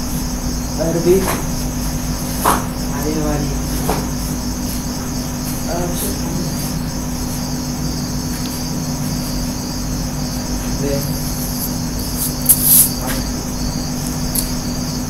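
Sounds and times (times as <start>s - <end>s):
crickets chirring: 0.0s - 15.0s
sharp rustle: 11.3s - 13.0s.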